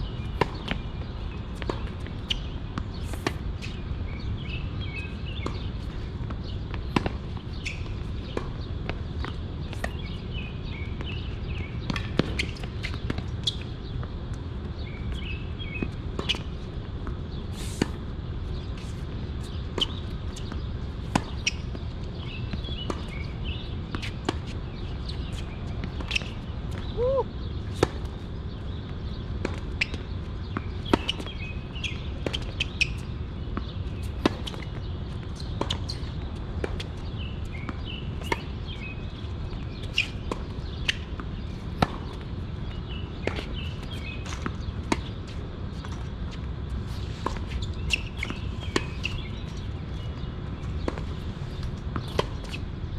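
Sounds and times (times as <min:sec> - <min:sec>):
birds chirping: 0:19.4 - 0:35.3.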